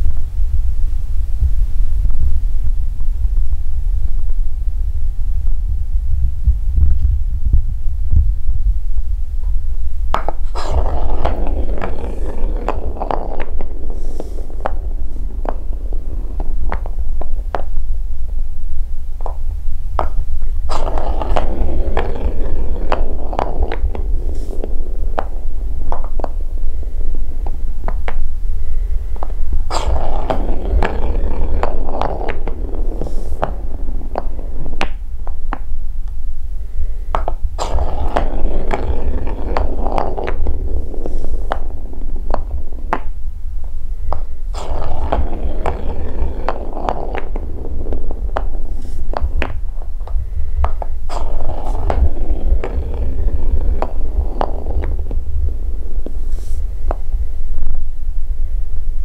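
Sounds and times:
wooden balls knocking: 0:09.4 - 0:36.5, 0:37.1 - 0:58.0
wooden balls rolling on track: 0:09.4 - 0:58.4.

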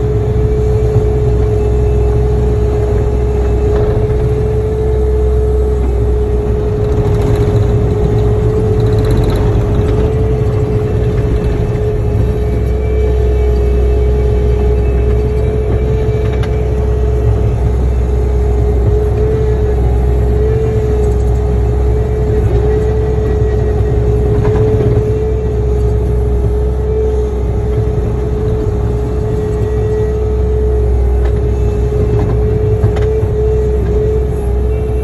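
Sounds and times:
loader engine running: 0:00.0 - 0:35.0.

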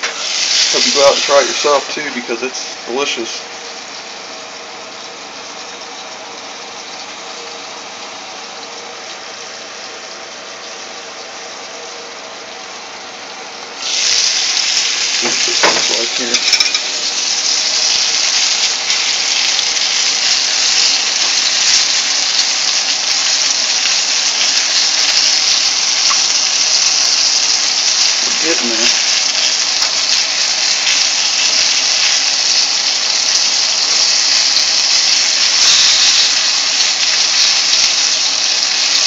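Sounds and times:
meat sizzling in oil: 0:00.0 - 0:39.0
metal lid clinking: 0:15.6 - 0:16.9.

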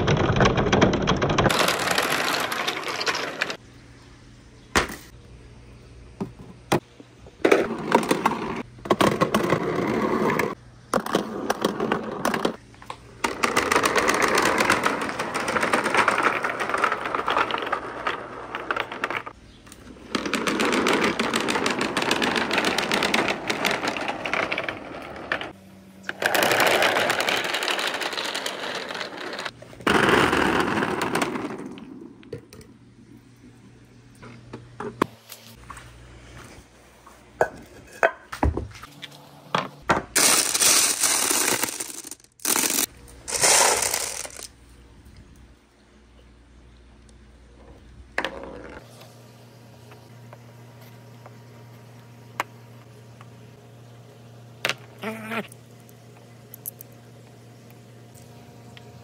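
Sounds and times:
plastic balls rolling and clattering: 0:00.0 - 0:03.6, 0:07.4 - 0:32.8, 0:39.8 - 0:44.5, 0:47.6 - 0:48.9, 0:54.6 - 0:55.6.

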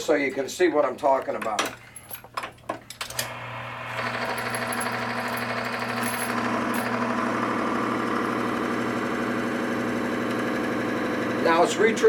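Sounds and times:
electric motor humming: 0:03.2 - 0:12.0.

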